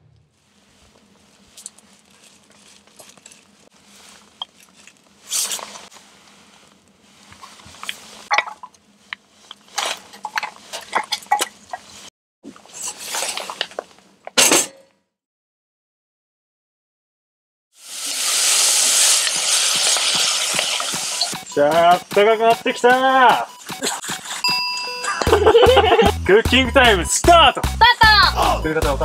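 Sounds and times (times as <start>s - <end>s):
campfire crackling: 17.8s - 21.4s.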